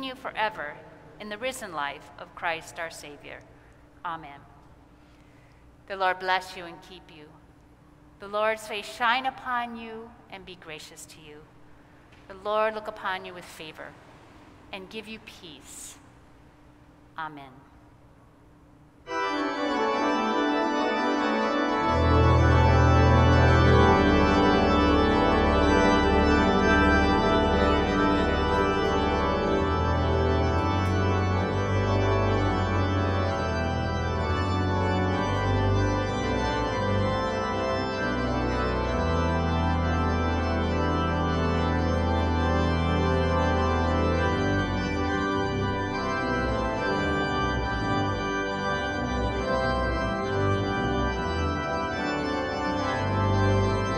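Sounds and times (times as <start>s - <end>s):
organ playing full chords: 19.0s - 53.9s
deep organ bass pedal notes: 19.1s - 53.9s.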